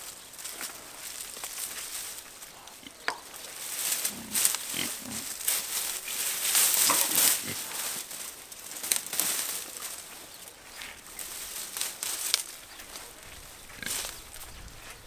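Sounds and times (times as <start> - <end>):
dry vines rustling and crackling: 0.0 - 15.0.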